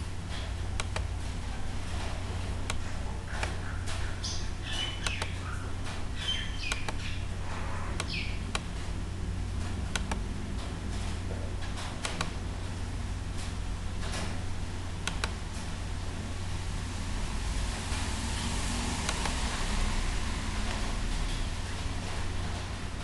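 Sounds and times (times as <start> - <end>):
low electrical hum: 0.0 - 23.0
computer mouse clicks: 0.8 - 1.1, 5.0 - 5.3, 9.9 - 10.2, 15.0 - 15.4, 19.0 - 19.4.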